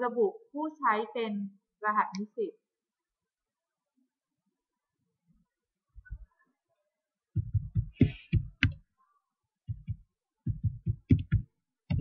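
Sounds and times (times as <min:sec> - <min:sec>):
keyboard typing: 0:07.4 - 0:08.8, 0:09.7 - 0:12.0.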